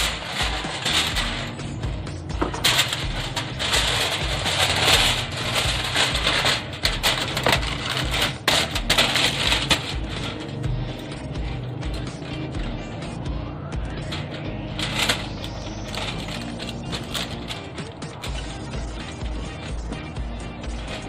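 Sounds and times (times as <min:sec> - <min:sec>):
aluminium foil crinkling: 0:00.0 - 0:12.3, 0:14.0 - 0:19.9.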